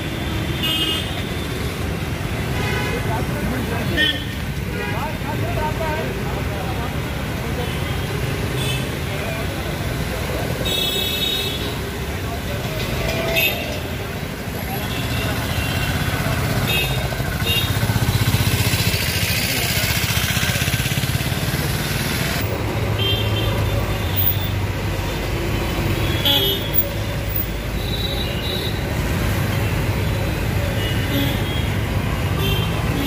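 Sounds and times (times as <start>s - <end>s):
vehicle engines running: 11.7s - 33.0s.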